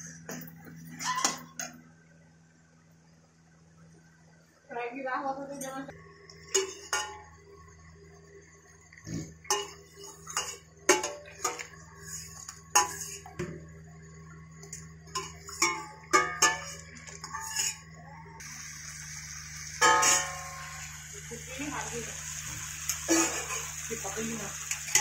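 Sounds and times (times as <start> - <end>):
pouring water hiss: 18.4 - 24.6.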